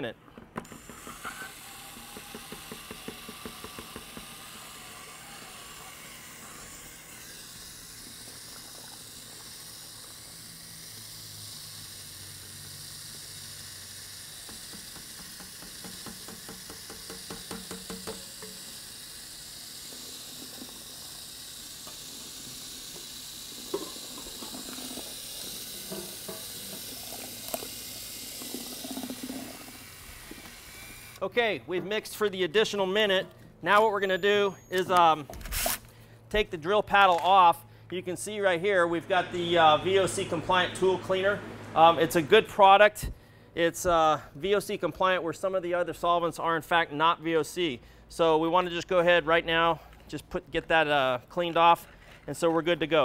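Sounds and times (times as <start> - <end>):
drill stirring mix in bucket: 0.0 - 31.3.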